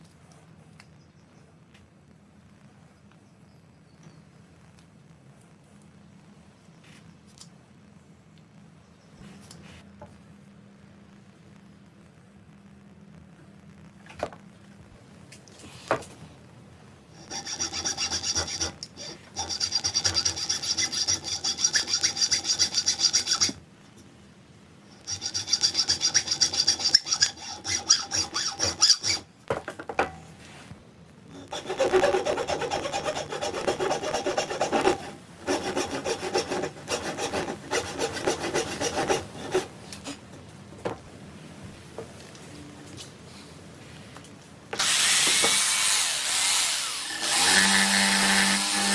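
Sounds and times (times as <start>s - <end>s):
hacksaw cutting wood: 17.2s - 23.6s, 25.1s - 29.2s, 31.4s - 39.7s, 44.8s - 48.9s.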